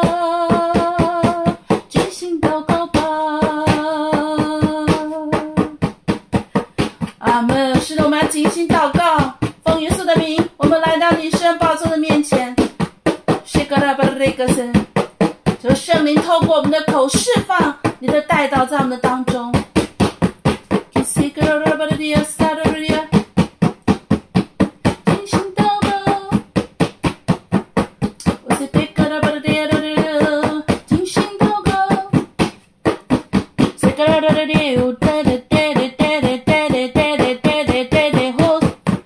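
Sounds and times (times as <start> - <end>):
person singing wordless phrases: 0.0 - 5.8, 7.1 - 12.7, 13.5 - 14.8, 15.6 - 19.6, 21.0 - 23.2, 25.0 - 26.4, 28.4 - 32.2, 33.8 - 38.8
fast drum beat: 0.0 - 39.0.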